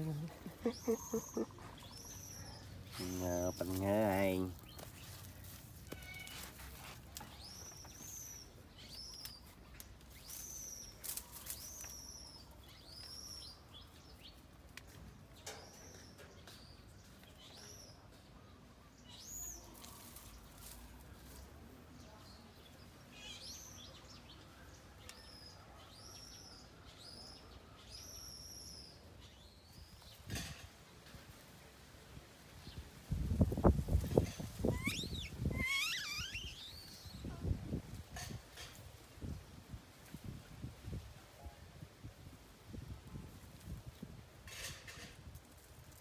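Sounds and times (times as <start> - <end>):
high-pitched animal calls: 34.6 - 36.9.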